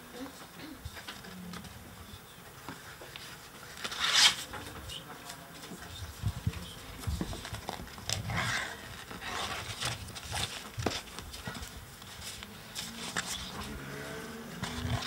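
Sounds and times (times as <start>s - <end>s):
paper pages rustling: 2.6s - 13.9s.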